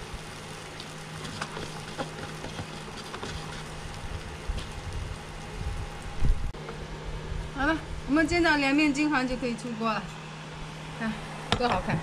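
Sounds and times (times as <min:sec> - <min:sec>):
pancake batter sizzling in pan: 0:00.0 - 0:06.4
low steady hum: 0:00.0 - 0:12.0.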